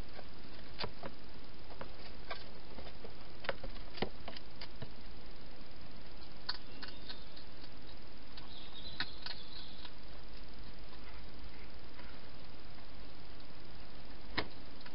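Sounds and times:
steady hiss: 0:00.0 - 0:14.9
hedgehog eating clicks and crunches: 0:06.2 - 0:11.2.

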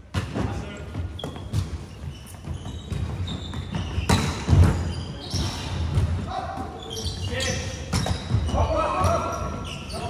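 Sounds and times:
ball bouncing on indoor court: 0:00.0 - 0:10.0
shoes squeaking on floor: 0:00.5 - 0:10.0.

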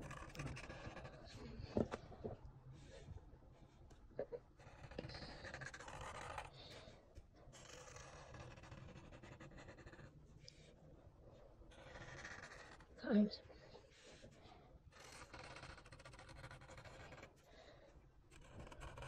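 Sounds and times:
marker scratching on paper: 0:00.0 - 0:01.9, 0:04.6 - 0:06.9, 0:07.6 - 0:10.6, 0:11.7 - 0:13.3, 0:14.9 - 0:17.3, 0:18.3 - 0:19.0.

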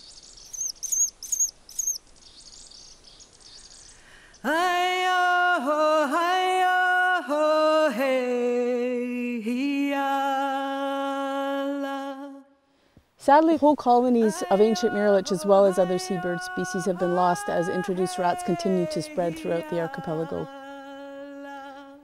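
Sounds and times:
birds chirping: 0:00.0 - 0:04.5
person singing long held notes: 0:04.4 - 0:12.6, 0:14.2 - 0:22.0.

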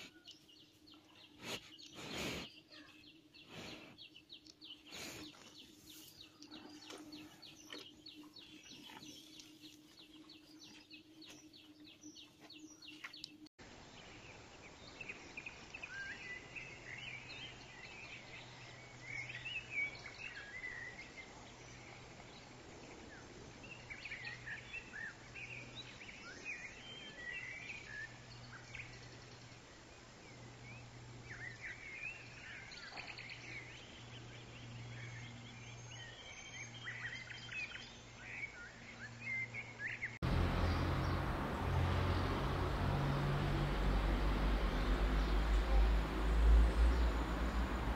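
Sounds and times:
small birds chirping: 0:00.0 - 0:47.9
low drone: 0:40.2 - 0:47.9.

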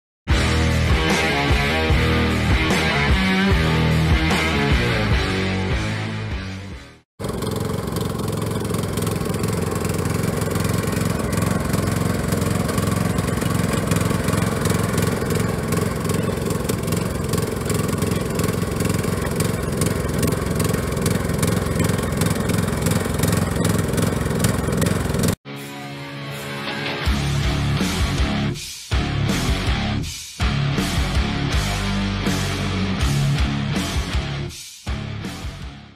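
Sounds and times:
riding lawn mower engine running: 0:07.2 - 0:25.4.

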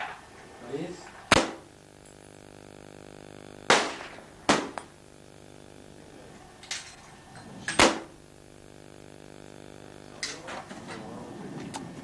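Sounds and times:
rifle shots: 0:01.3 - 0:01.7, 0:03.7 - 0:04.9, 0:07.7 - 0:08.1.

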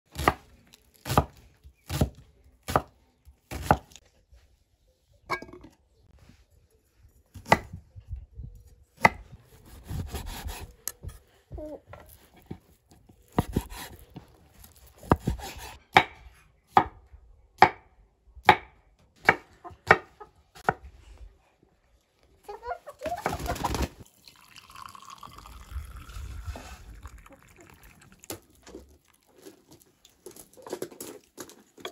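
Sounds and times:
tea pouring into glass mugs: 0:24.0 - 0:29.5.

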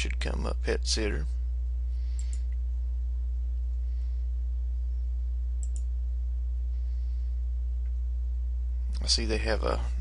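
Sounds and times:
low electrical hum: 0:00.0 - 0:10.0
computer mouse clicks: 0:05.6 - 0:05.9.

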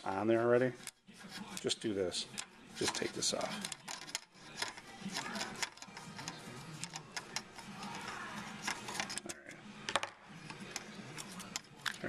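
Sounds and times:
small parts clicking on a desk: 0:02.3 - 0:09.3.

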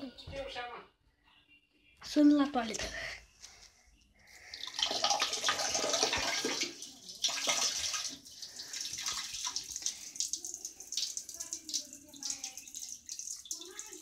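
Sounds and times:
water splashing into toilet bowl: 0:04.5 - 0:14.0.

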